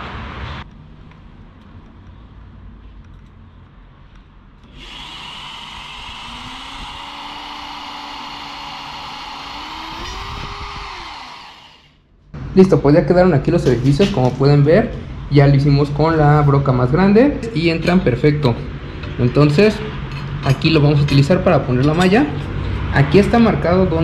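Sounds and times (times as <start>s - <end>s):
drill press boring steel: 4.6s - 12.0s.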